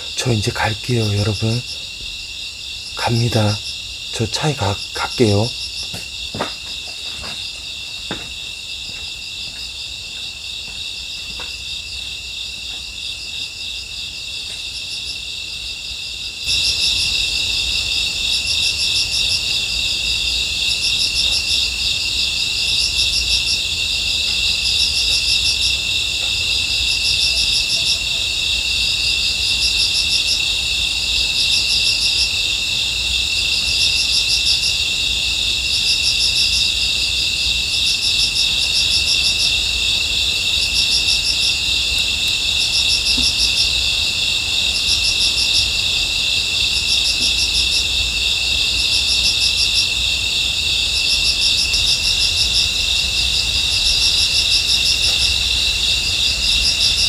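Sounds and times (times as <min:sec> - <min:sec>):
insect pulsed bursts: 0:00.0 - 0:06.4
insects trilling: 0:00.0 - 0:57.0.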